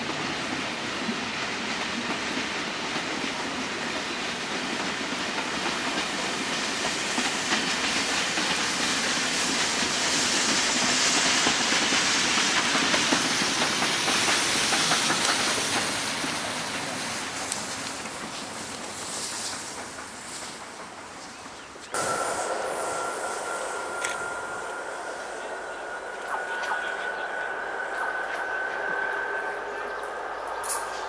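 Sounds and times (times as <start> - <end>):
steam locomotive hissing: 0.0 - 31.0
train wheels clattering on rails: 0.0 - 31.0.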